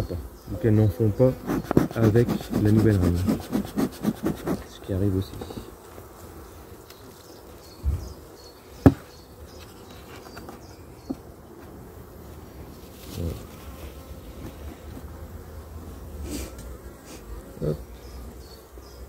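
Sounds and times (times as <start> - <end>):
honeybees buzzing: 0.0 - 19.0
soft thump: 8.8 - 9.1.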